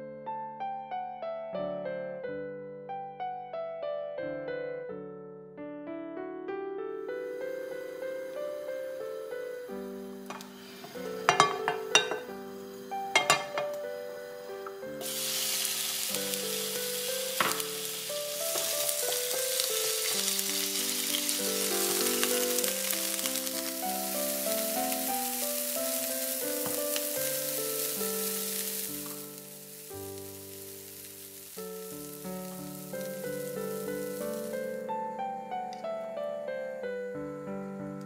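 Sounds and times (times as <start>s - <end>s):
chicken sizzling in oil: 7.2s - 35.1s
spatula stirring in pan: 10.3s - 12.3s, 18.3s - 21.2s.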